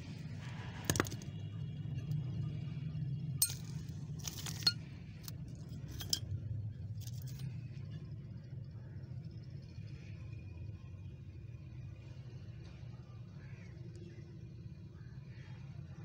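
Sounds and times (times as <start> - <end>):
steady low hum: 0.0 - 16.0
metal tools clinking: 3.4 - 6.4, 7.0 - 7.5.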